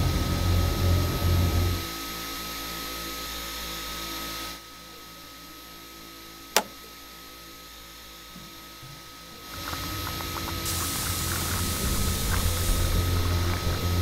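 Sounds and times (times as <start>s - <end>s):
circuit breaker switch click: 6.6s - 6.9s.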